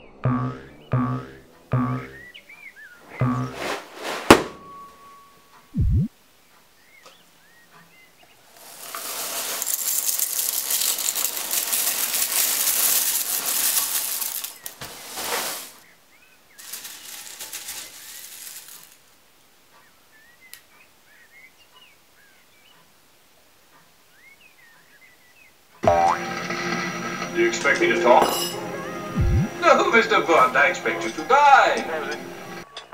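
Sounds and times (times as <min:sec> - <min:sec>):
cereal pouring into a bowl: 0:08.5 - 0:15.8, 0:16.6 - 0:19.0.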